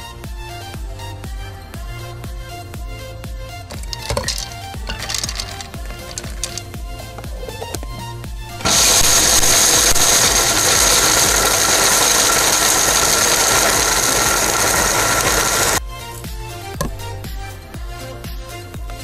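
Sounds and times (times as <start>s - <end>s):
blender motor whine: 3.7s - 7.9s, 8.6s - 15.8s.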